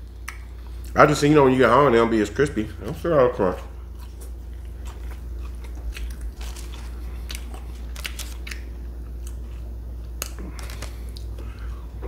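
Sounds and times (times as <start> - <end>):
steady low hum: 0.0 - 12.0
person chewing crunchy fries: 3.4 - 11.7.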